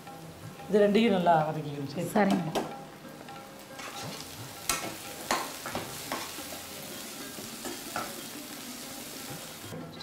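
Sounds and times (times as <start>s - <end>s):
vegetables sizzling in oil: 0.0s - 9.8s
spatula scraping and knocking pan: 3.8s - 6.7s.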